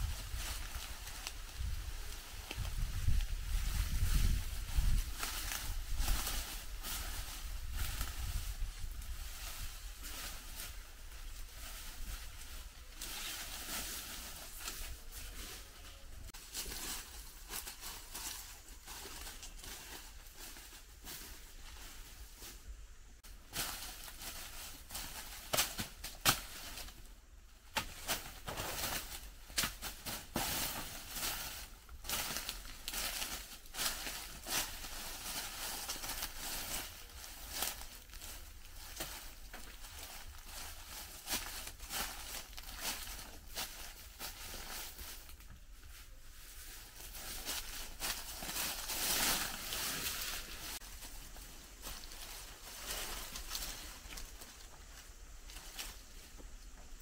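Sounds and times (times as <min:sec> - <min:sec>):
plant material rustling: 0:00.0 - 0:57.0.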